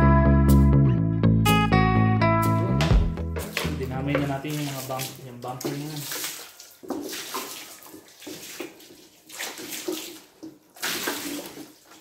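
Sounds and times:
water spraying in short bursts: 3.4 - 12.0.

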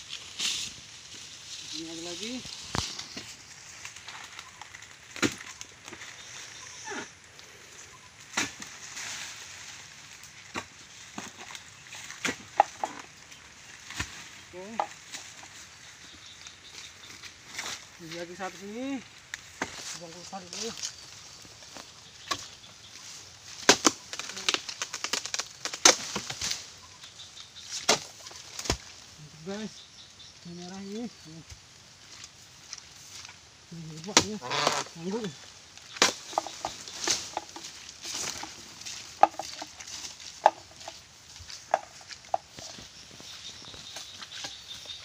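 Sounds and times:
fronds crackling and splitting: 0.0 - 45.0
chisel striking palm fronds: 5.1 - 6.0, 23.5 - 26.6, 27.7 - 28.9, 34.0 - 34.9, 35.9 - 41.0.

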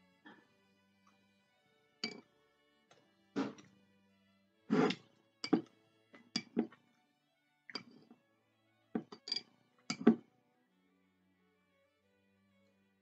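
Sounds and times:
quiet background music: 0.0 - 13.0
metal utensil clinking on glass jar: 2.0 - 2.2, 5.4 - 5.7, 6.4 - 6.8, 9.0 - 10.2.

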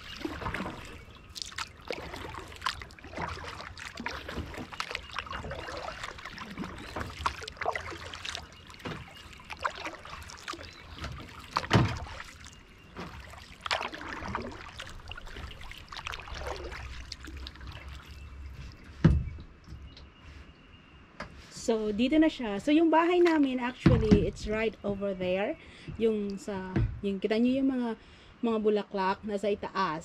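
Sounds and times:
kayak paddle splashing: 0.0 - 19.0
water trickling off paddle: 0.0 - 19.6.

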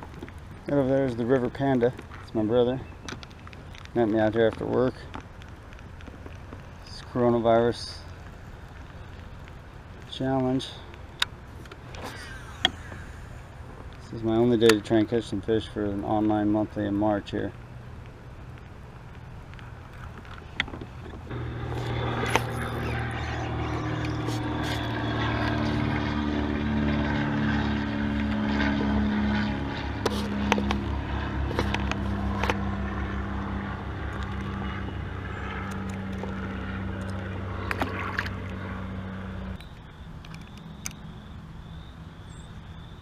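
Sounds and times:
boat motor running: 20.5 - 41.8.

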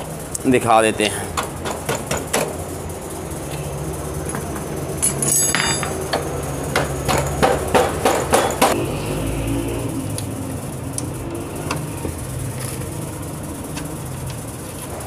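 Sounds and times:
socket wrench clinking on metal: 5.0 - 6.1
low hum: 8.6 - 15.0.

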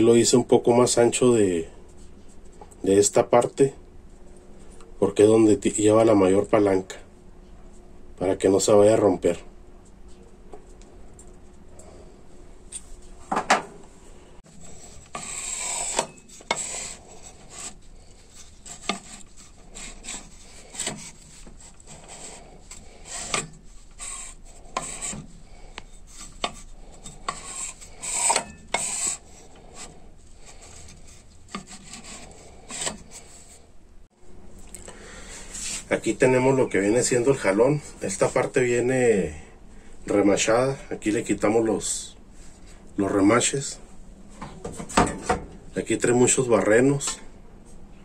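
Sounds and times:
engine parts rubbing and scraping: 14.4 - 33.7.

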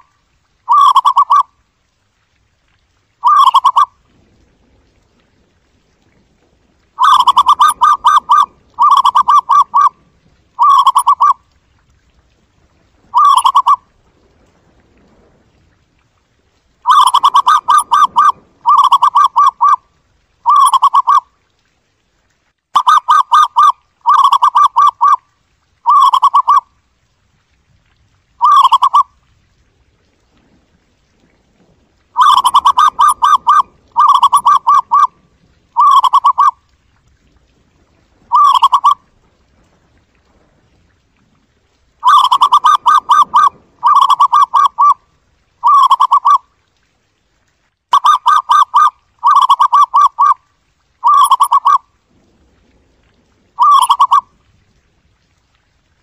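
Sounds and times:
dove cooing: 0.7 - 1.4, 3.2 - 3.9, 7.0 - 10.0, 10.6 - 11.4, 13.1 - 13.8, 16.9 - 19.8, 20.4 - 21.2, 22.8 - 25.2, 25.8 - 26.6, 28.4 - 29.0, 32.2 - 35.2, 35.8 - 36.6, 38.3 - 39.0, 42.0 - 45.0, 45.6 - 46.4, 48.0 - 50.4, 51.0 - 51.8, 53.6 - 54.3.

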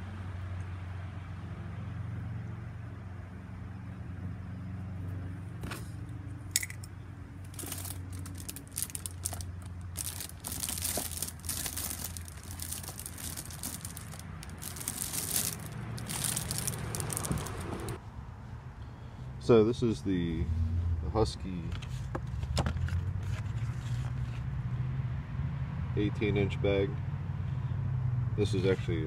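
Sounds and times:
plastic packaging crinkling: 7.5 - 18.0.

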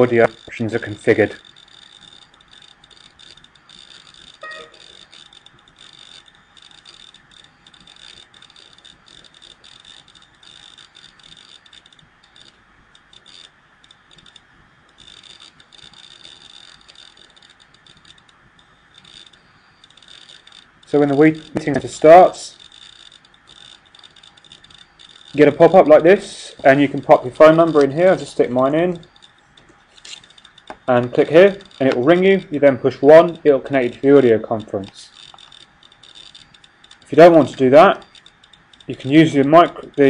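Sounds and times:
faint clicks: 0.0 - 40.0
high-pitched whine: 4.3 - 5.2
soft tone: 4.4 - 5.0.

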